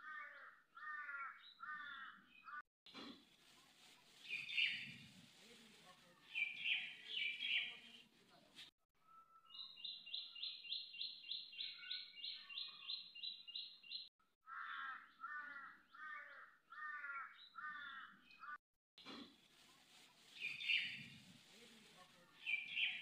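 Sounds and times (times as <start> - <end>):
birds calling: 20.4 - 21.1.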